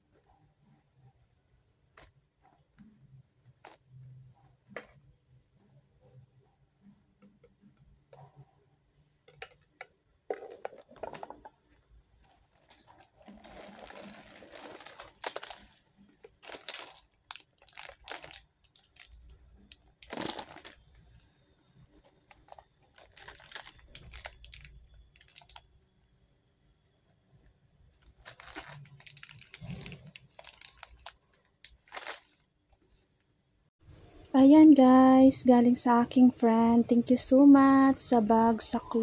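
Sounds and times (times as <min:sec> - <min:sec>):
plastic wrappers crinkling: 0:12.5 - 0:21.2, 0:22.0 - 0:25.7, 0:28.0 - 0:32.5.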